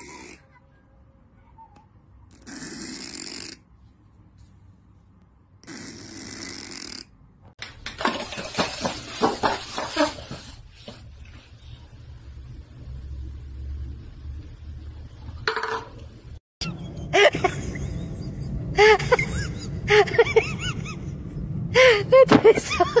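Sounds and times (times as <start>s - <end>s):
cat snoring: 2.4s - 3.6s, 5.6s - 7.1s
cups clicking on tile floor: 7.6s - 10.6s, 15.4s - 16.1s.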